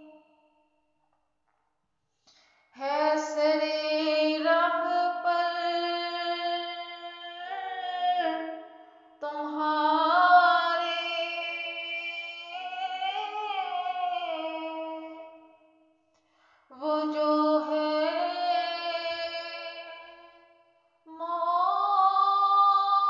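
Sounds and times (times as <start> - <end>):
woman singing unaccompanied: 2.8 - 8.6, 9.2 - 15.4, 16.7 - 20.2, 21.1 - 23.0.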